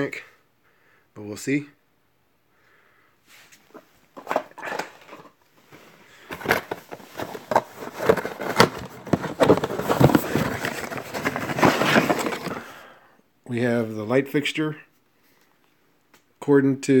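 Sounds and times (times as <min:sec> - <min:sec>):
cardboard packaging rustling and crackling: 0:03.7 - 0:12.8.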